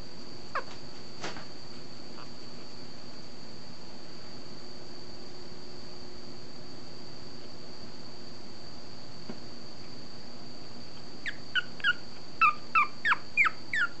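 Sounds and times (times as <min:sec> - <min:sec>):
faint high whine: 0:00.0 - 0:14.0
puppy squeaking and whimpering: 0:00.5 - 0:00.8, 0:11.2 - 0:14.0.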